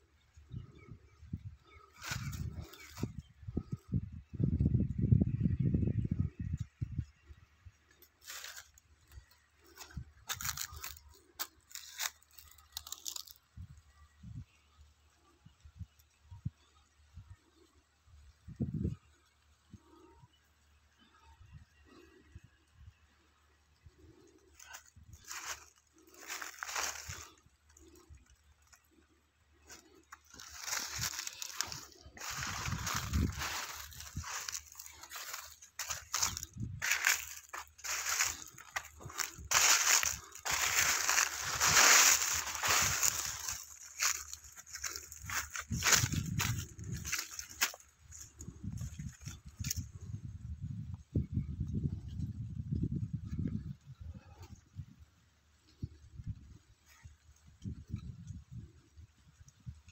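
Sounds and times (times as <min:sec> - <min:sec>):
crunching and rustling: 0:01.6 - 0:03.3, 0:07.9 - 0:13.8, 0:24.0 - 0:50.1.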